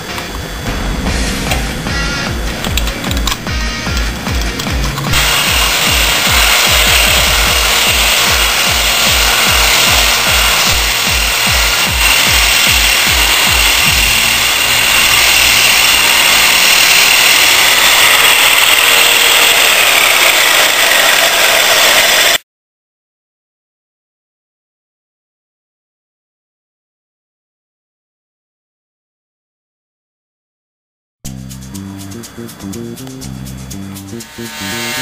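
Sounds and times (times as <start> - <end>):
background music with beat: 0.0 - 16.6, 31.3 - 35.0
motor high whine: 0.0 - 22.4, 31.3 - 35.0.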